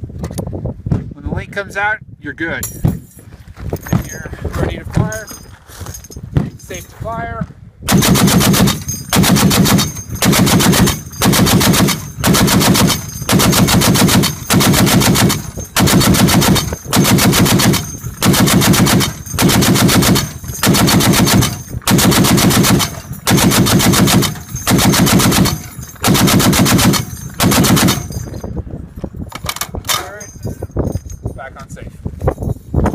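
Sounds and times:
heavy machine gun bursts: 7.9s - 28.2s.

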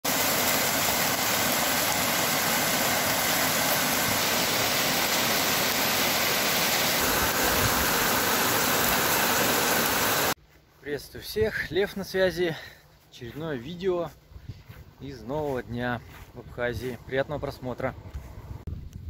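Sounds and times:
heavy rain: 0.0s - 10.4s
runoff streaming onto wet paving: 0.0s - 10.4s.

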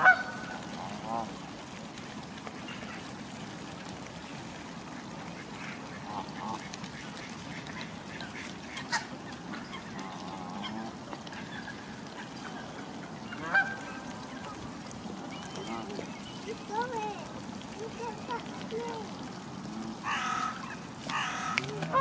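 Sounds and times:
geese and ducks calling: 0.0s - 1.4s, 4.9s - 16.8s, 19.6s - 22.0s.

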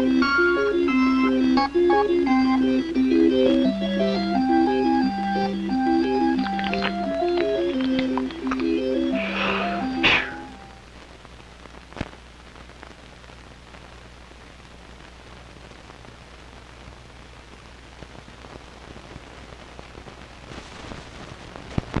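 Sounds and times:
film soundtrack hiss: 0.0s - 22.0s
low hum: 5.0s - 11.0s
faint crackle: 5.9s - 22.0s
sharp pop: 9.6s - 10.8s.

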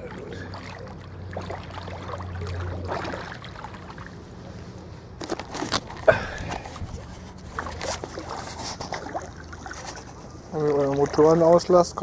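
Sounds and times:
splashes and drips of mud: 0.0s - 4.2s
low hum: 0.0s - 8.4s
water sloshing around wading feet: 0.0s - 12.0s.

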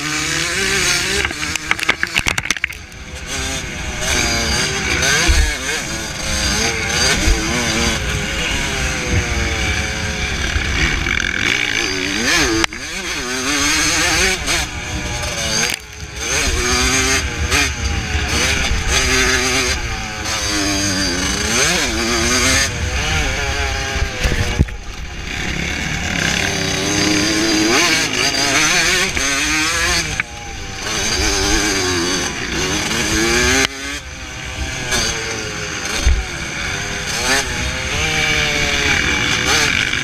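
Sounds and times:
two-stroke motorcycle engine revving: 0.0s - 40.0s.

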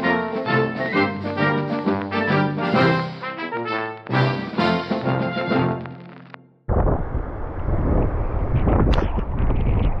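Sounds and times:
wind buffeting microphone: 6.7s - 10.0s.

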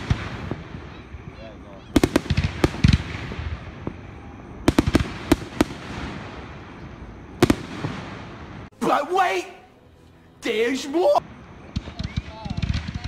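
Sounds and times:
firework shells bursting: 1.9s - 6.6s, 7.4s - 8.7s.

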